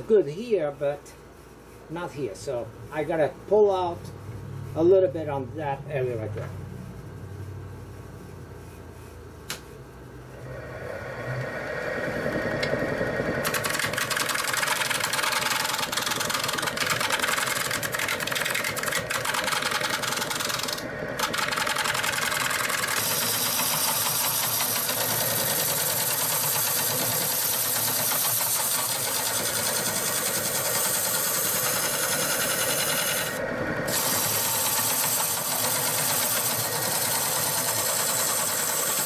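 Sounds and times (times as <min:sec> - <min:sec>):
wood lathe tool cutting: 0:10.4 - 0:39.0.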